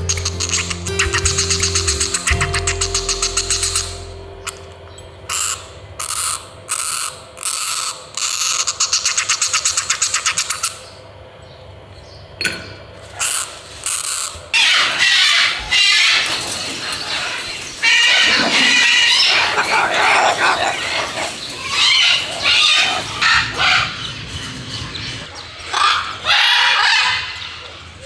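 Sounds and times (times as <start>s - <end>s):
cockatoos harsh calling: 0.0s - 4.1s, 13.1s - 28.0s.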